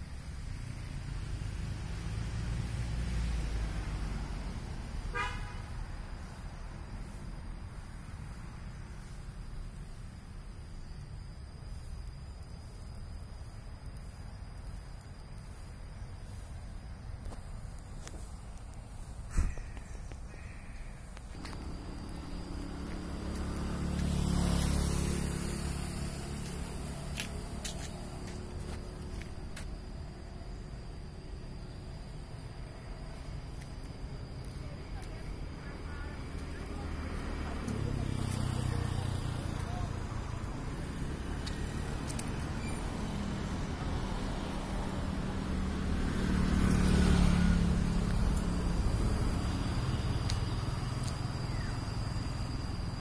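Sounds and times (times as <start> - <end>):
vehicle passing by: 0.4 - 9.2, 21.3 - 53.0.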